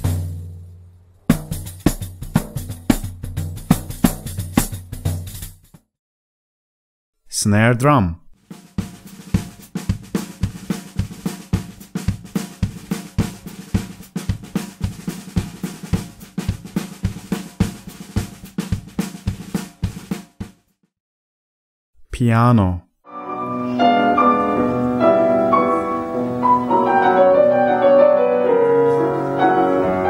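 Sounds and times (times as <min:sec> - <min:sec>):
snare drum strokes: 0:00.0 - 0:00.6, 0:08.4 - 0:20.6.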